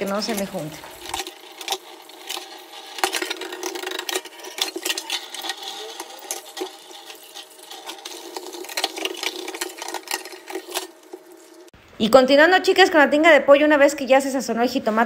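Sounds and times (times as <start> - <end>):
brush scrubbing: 0.0 - 11.7
tap water running into sink: 0.0 - 11.7
dishes and pan clinking: 0.3 - 11.3.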